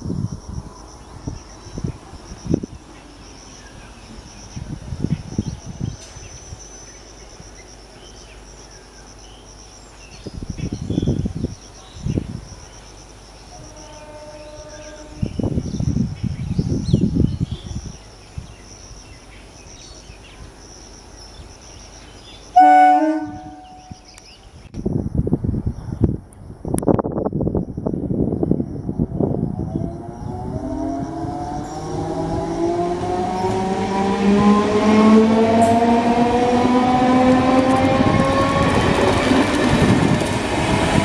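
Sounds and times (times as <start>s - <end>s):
insects chirring: 0.0s - 25.3s
train horn: 13.6s - 15.4s, 22.6s - 24.0s
electric train approaching: 22.6s - 24.1s, 28.8s - 41.0s.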